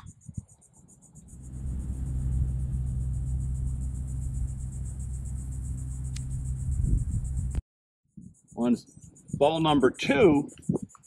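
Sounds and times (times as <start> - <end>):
insects buzzing: 0.0 - 7.6, 8.2 - 11.0
low rumbling hum: 1.0 - 7.6.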